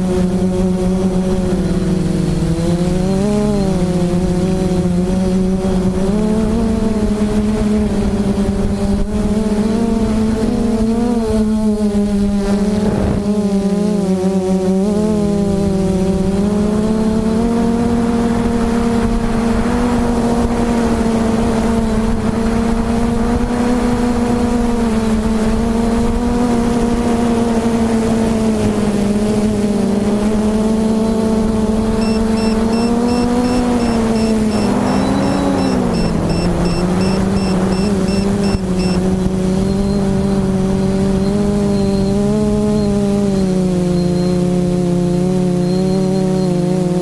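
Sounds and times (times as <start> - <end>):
quadcopter motors buzzing: 0.0 - 47.0
rapid high electronic beeping: 32.0 - 39.1.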